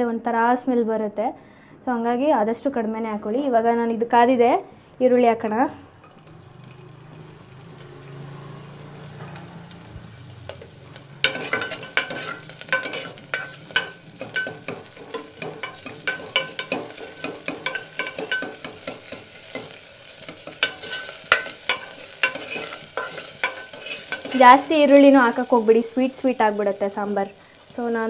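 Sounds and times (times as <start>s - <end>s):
spoon scraping a metal pot: 6.0s - 6.9s, 10.5s - 24.6s
onion sizzling in hot oil: 6.0s - 28.0s.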